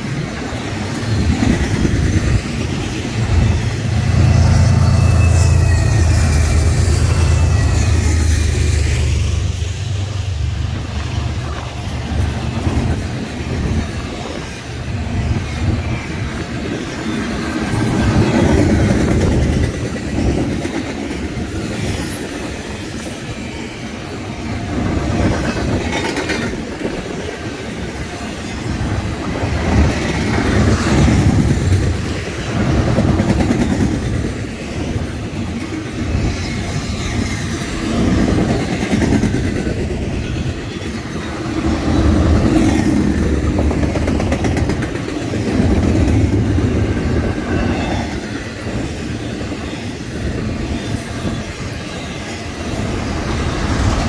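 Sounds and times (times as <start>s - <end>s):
train wheels clicking over rail joints: 0.0s - 23.2s, 24.6s - 49.6s.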